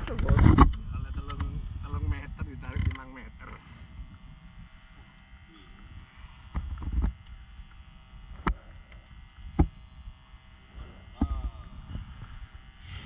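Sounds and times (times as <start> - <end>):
wind on microphone: 0.0 - 3.0, 9.2 - 13.0
boat rumble and hum: 0.0 - 10.2.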